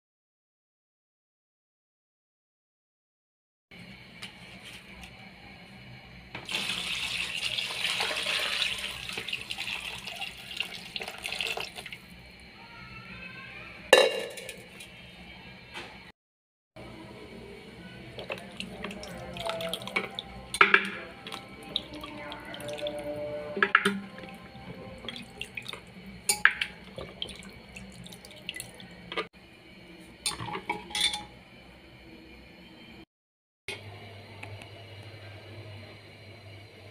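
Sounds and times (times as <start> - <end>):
hand washing raw meat: 18.2 - 20.3, 20.9 - 23.0, 26.8 - 28.9
water splashing into plastic bowl: 26.5 - 28.8.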